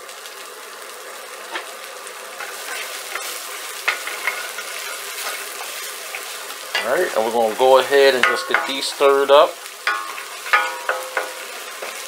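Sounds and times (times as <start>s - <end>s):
vegetables sizzling in oil: 0.0s - 12.0s
wooden spoon scraping a pan: 2.4s - 9.3s, 9.9s - 12.0s.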